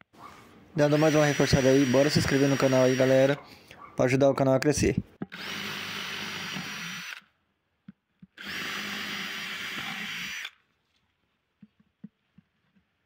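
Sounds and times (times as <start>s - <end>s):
electric drill boring through wood: 0.8s - 3.4s, 5.2s - 7.3s, 8.4s - 10.6s.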